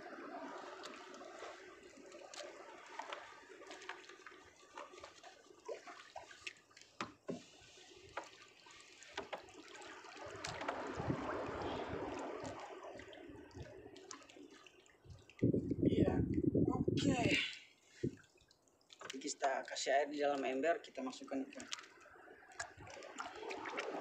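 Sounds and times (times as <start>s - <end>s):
bucket filling with water: 0.0s - 15.5s, 18.1s - 24.0s
light knocks and clatter: 9.1s - 9.5s.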